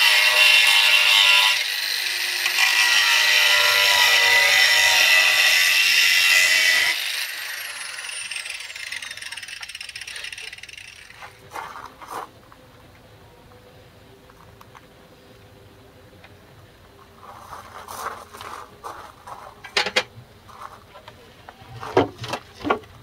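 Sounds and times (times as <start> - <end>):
angle grinder whining: 0.0 - 11.4.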